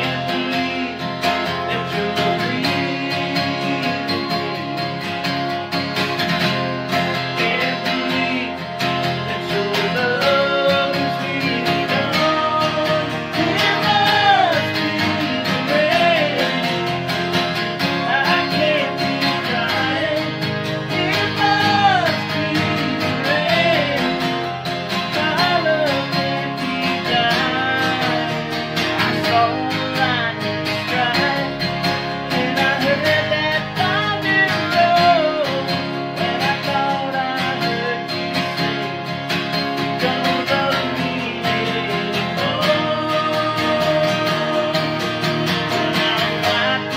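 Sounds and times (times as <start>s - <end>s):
man singing: 0.0s - 5.5s, 6.2s - 46.9s
acoustic guitars strummed: 0.0s - 46.9s.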